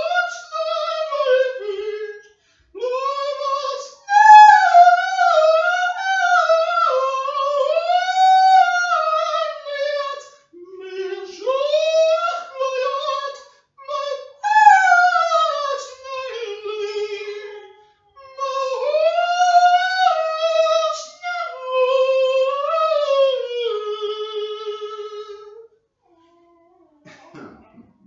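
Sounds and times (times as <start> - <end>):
man singing unaccompanied: 0.0 - 25.6.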